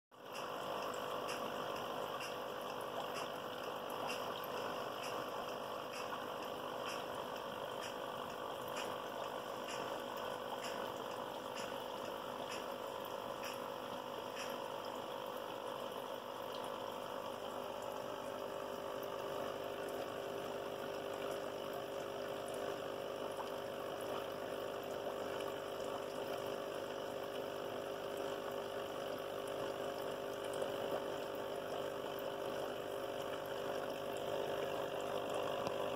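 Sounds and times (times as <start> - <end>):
faint ticks: 0.2 - 15.0, 30.5 - 35.9
air pump humming: 0.2 - 35.9.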